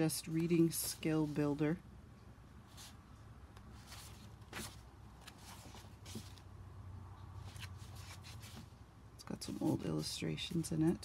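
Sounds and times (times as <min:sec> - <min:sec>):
paper pages rustling: 0:03.6 - 0:06.5, 0:07.4 - 0:08.7.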